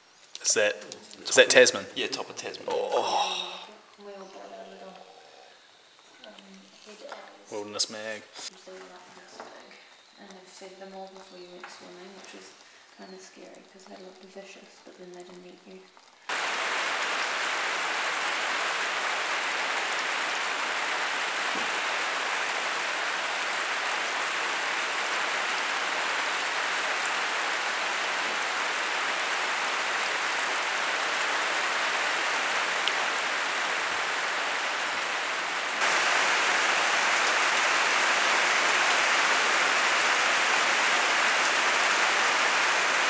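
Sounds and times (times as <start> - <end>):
steady rain hissing: 0.0 - 43.0
rainwater running off gutter: 10.4 - 43.0.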